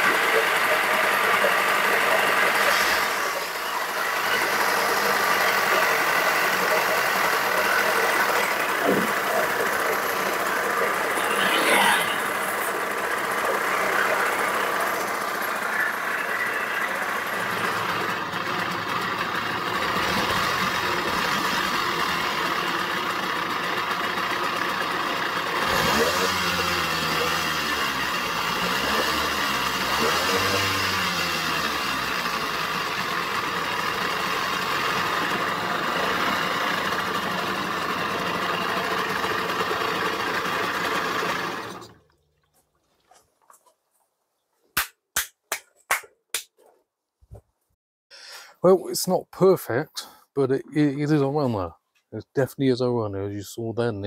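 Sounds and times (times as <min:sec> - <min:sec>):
outboard engine running: 0:00.0 - 0:42.1.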